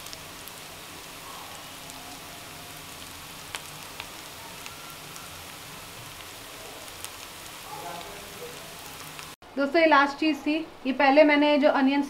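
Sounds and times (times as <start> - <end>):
onions sizzling in oil: 0.0 - 9.4.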